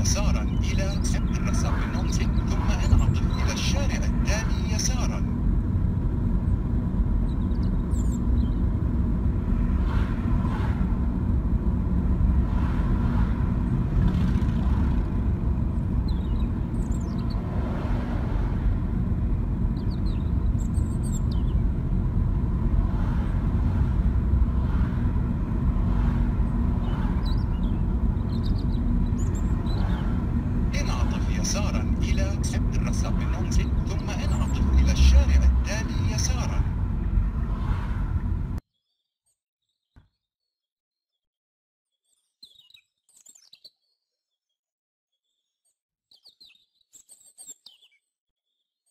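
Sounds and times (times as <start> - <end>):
car engine and tyre rumble: 0.0 - 38.6.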